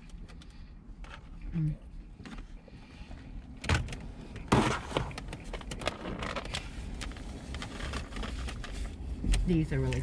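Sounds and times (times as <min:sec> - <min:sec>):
plastic container crackling: 0:04.5 - 0:08.9.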